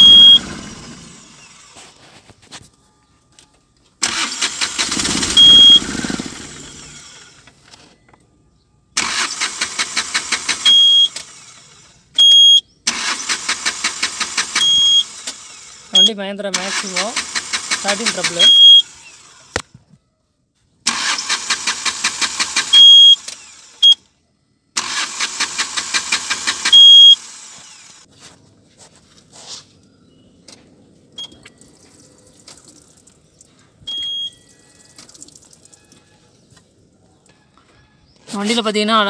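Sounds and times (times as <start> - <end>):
short loud high beep: 0.0 - 0.5, 5.4 - 5.9
diesel engine cranking: 0.0 - 2.1, 4.0 - 7.8, 9.0 - 12.2, 12.8 - 19.6, 20.8 - 24.0, 24.8 - 28.1.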